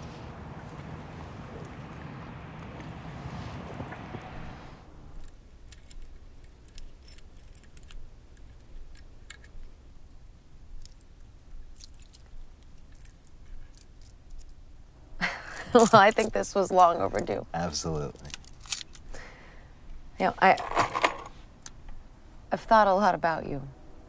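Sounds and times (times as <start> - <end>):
wind-like rushing noise: 0.0 - 5.2.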